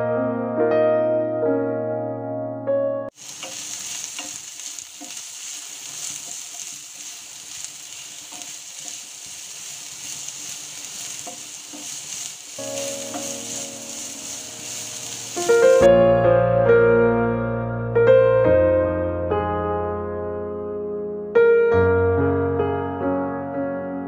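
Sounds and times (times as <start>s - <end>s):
onions sizzling in a pan: 3.1s - 15.9s.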